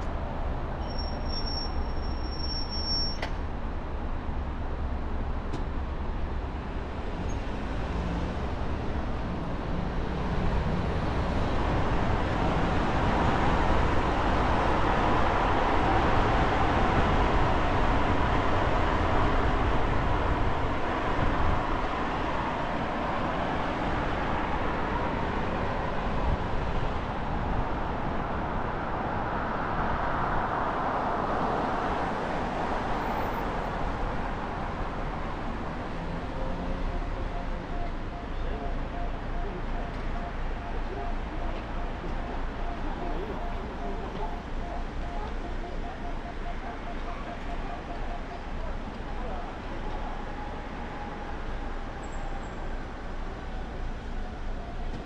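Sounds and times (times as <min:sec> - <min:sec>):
car road noise: 0:00.0 - 0:55.0.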